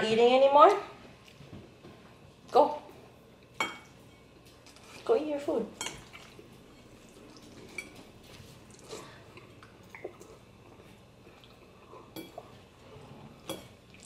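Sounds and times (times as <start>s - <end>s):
chewing pasta: 5.9s - 14.0s.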